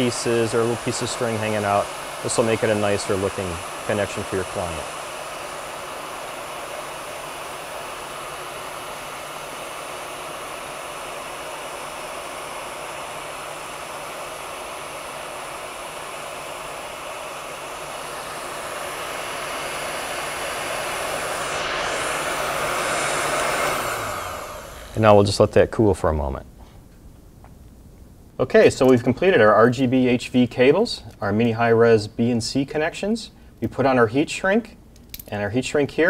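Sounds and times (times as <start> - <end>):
heat gun blower running: 0.0 - 26.2.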